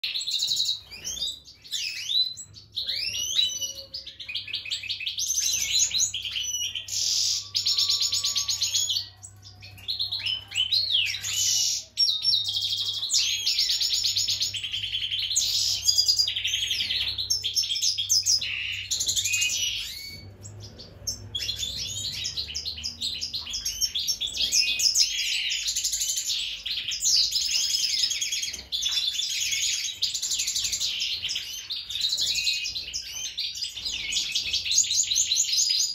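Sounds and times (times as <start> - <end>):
goldfinch twittering song: 0.0 - 35.9.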